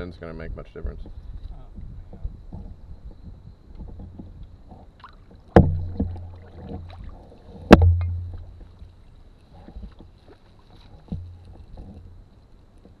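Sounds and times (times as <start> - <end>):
knocks on canoe hull: 5.5 - 7.0, 7.7 - 8.6.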